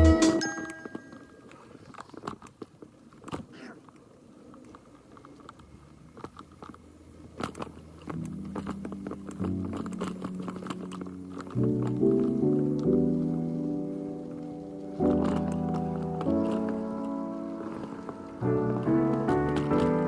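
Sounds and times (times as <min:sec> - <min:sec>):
music: 0:00.0 - 0:01.0, 0:08.2 - 0:20.0
bike rattling: 0:00.0 - 0:20.0
bike tyres crunching on dirt trail: 0:00.4 - 0:20.0.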